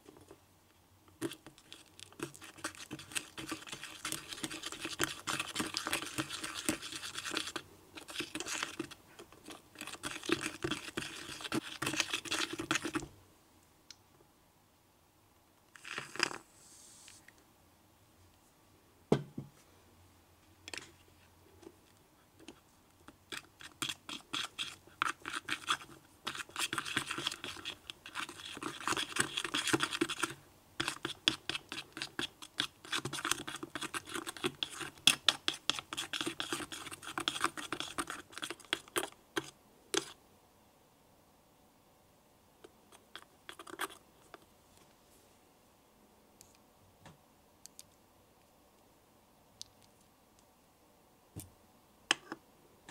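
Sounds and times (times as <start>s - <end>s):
stick stirring sticky slime: 1.2s - 13.1s, 15.8s - 17.2s, 22.4s - 40.2s, 42.6s - 44.5s.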